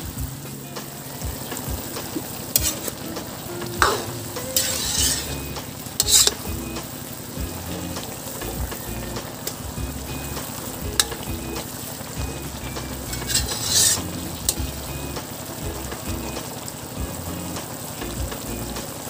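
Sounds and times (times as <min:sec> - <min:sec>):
broth simmering: 0:00.0 - 0:19.0
metal spatula scraping a wok: 0:02.5 - 0:03.2, 0:03.8 - 0:06.6, 0:12.7 - 0:14.6.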